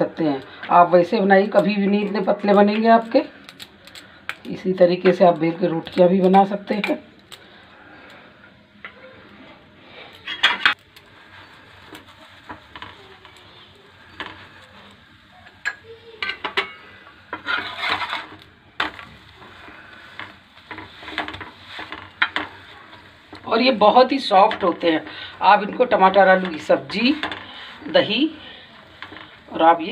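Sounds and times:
metal spatula scraping griddle: 8.9s - 29.9s.

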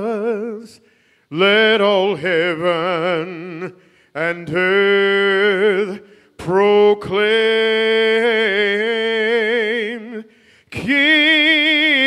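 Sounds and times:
man singing hymn unaccompanied: 0.0s - 12.0s
singer breathing: 0.8s - 1.3s, 3.7s - 4.2s, 6.0s - 6.4s, 10.2s - 10.8s.

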